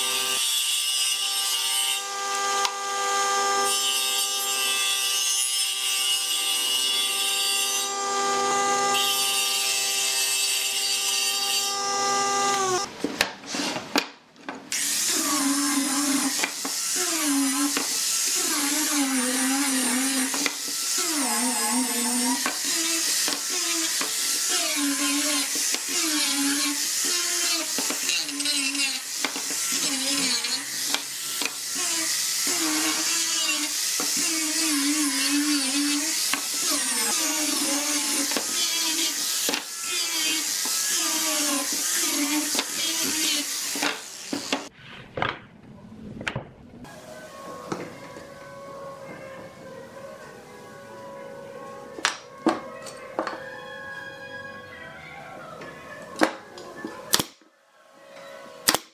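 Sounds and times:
angle grinder whining: 0:00.0 - 0:04.6, 0:06.3 - 0:12.9, 0:14.7 - 0:44.8.

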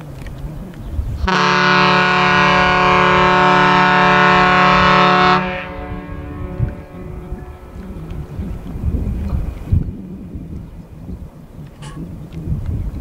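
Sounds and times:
wind noise on microphone: 0:00.0 - 0:13.0
ship whistle blast: 0:01.2 - 0:07.8.

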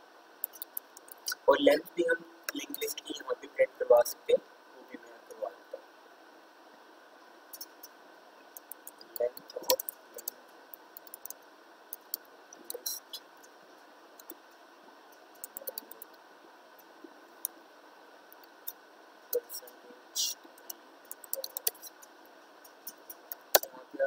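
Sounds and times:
keyboard typing clicks: 0:00.4 - 0:01.2, 0:08.6 - 0:10.4, 0:11.0 - 0:13.0, 0:15.4 - 0:16.1, 0:20.6 - 0:21.9, 0:22.9 - 0:23.7.

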